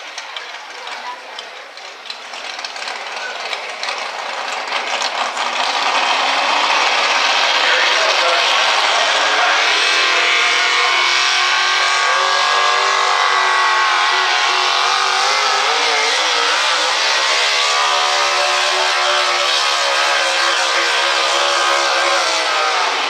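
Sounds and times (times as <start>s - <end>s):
supercharged truck engine under load: 0.0s - 23.0s.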